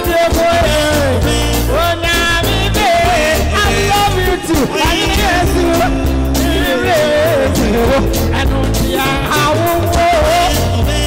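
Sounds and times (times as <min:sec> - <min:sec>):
gospel band with bass and drums: 0:00.0 - 0:11.0
person singing into a microphone: 0:00.0 - 0:11.0.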